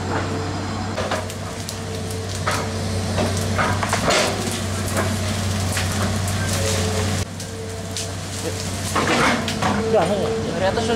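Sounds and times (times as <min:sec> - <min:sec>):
sticks and undergrowth snapping: 0:01.1 - 0:06.8.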